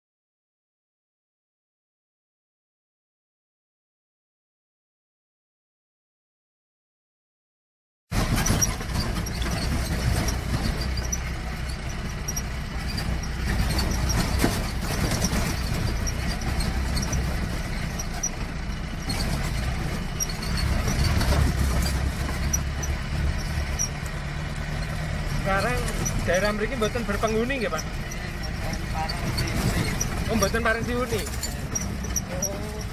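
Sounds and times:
car engine running: 8.1 - 32.9
knocks and rattles over bumps: 8.1 - 32.9.

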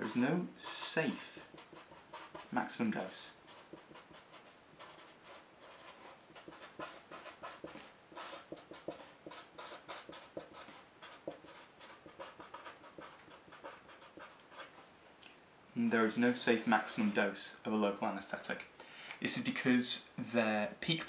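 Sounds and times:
marker scratching on paper: 0.0 - 14.8, 16.5 - 17.2.

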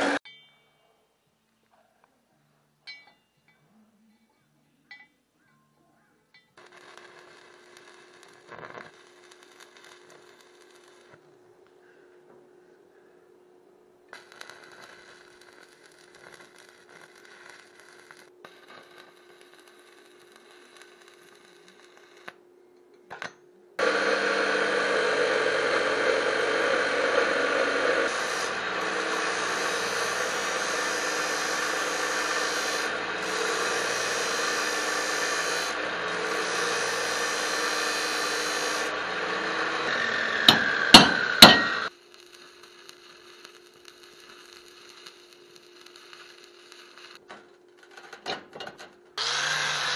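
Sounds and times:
cut-off saw grinding steel: 0.0 - 0.2, 23.8 - 41.9, 49.2 - 49.9.

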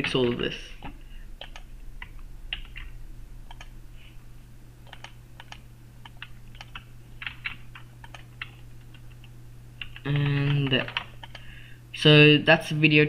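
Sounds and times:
keyboard typing clicks: 0.0 - 3.7, 4.8 - 11.5
low electrical hum: 0.0 - 13.0.

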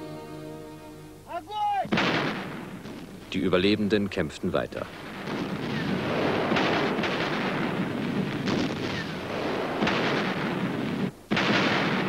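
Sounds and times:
artillery blasts: 1.9 - 3.7, 4.8 - 12.0.

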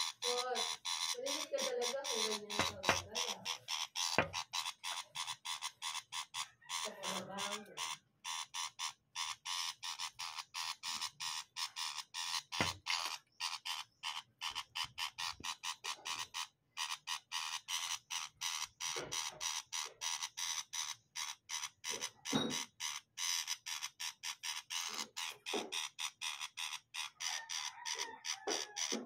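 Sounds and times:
bird chattering call: 0.0 - 29.0
sharp knock: 4.2 - 4.4.

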